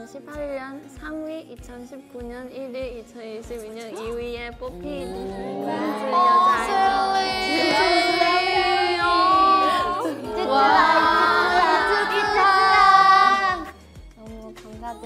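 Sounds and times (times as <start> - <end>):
light background music with beat: 0.0 - 15.0
young women chanting sing-song: 4.6 - 13.8.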